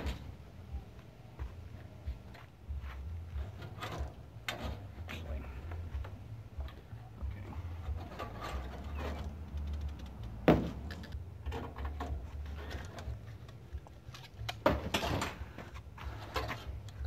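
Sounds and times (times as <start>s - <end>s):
rattling scrape: 3.3s - 5.3s, 7.8s - 13.4s, 14.2s - 16.8s
scattered clicks: 9.4s - 11.2s
sharp knock: 10.5s - 10.8s.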